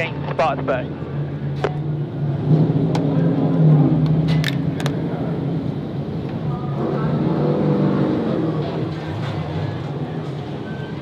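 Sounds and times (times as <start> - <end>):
race car engines droning: 0.0 - 11.0.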